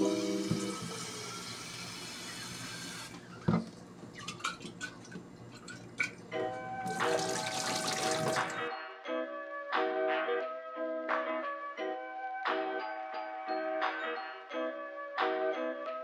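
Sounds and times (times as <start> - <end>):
background music: 0.0 - 1.4, 6.2 - 16.0
tap water running into bottle: 0.0 - 8.7
water poured into sink: 0.0 - 8.7.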